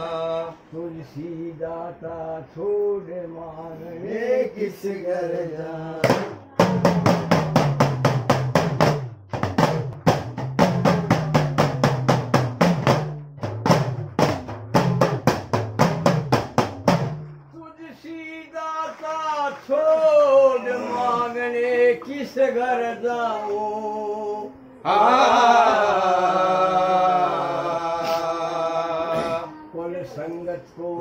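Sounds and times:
drum struck in fast strokes: 6.0 - 17.4.

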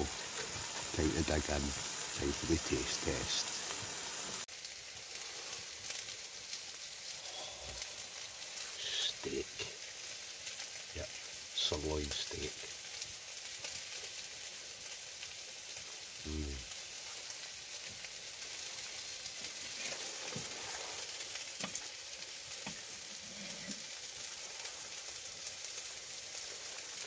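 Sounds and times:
fat crackling: 0.0 - 11.3, 18.8 - 27.0
food sizzling in frying pan: 0.0 - 27.0.

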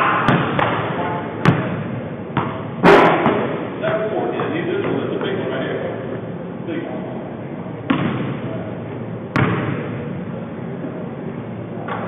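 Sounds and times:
basketball thuds echoing: 0.2 - 3.7, 7.8 - 8.4, 9.3 - 10.0.

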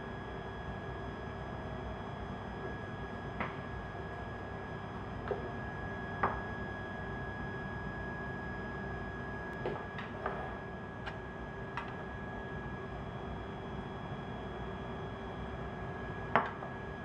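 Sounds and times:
equipment hum with high tone: 0.0 - 17.0.

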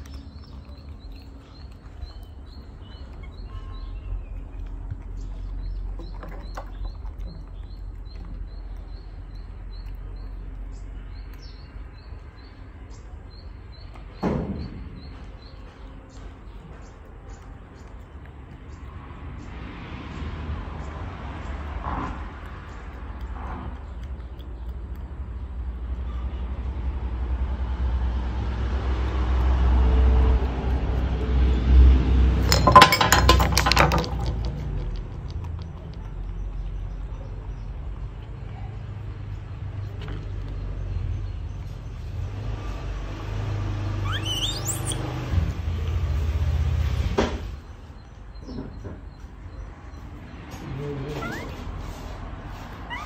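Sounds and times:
ceramic teapot clattering: 32.4 - 35.3.

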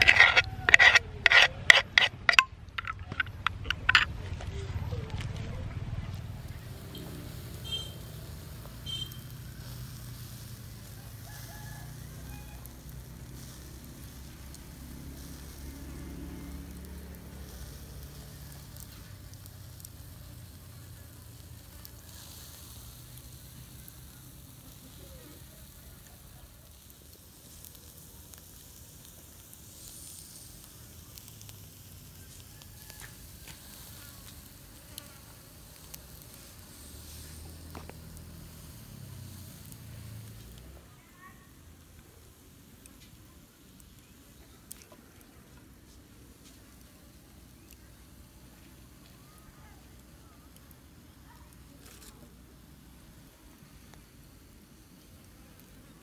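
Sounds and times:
squid sizzling on a grill: 0.0 - 2.4, 6.1 - 56.0.

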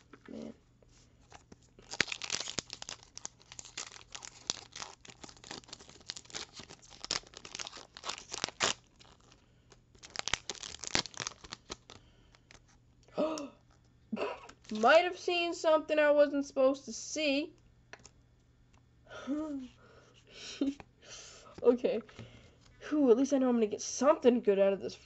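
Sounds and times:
foil wrapper tearing and crinkling: 1.3 - 12.6, 14.5 - 14.9.

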